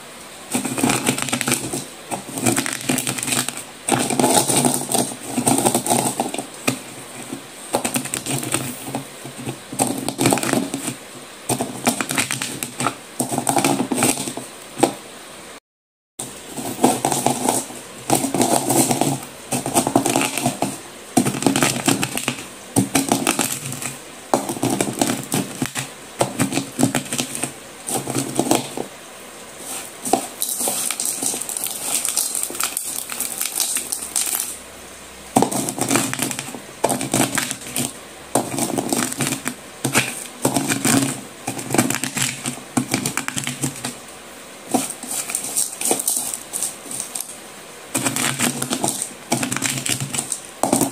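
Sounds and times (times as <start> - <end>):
pencil pieces crushed with pestle: 0.5 - 15.0, 16.2 - 29.0, 29.6 - 34.6, 35.3 - 44.0, 44.7 - 50.9
hissy scraping: 23.4 - 34.6, 44.6 - 50.9.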